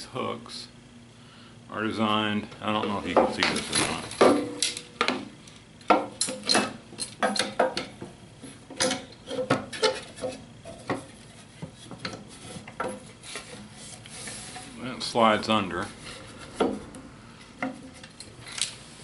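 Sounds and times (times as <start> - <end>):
rubbing and scraping: 9.2 - 14.8.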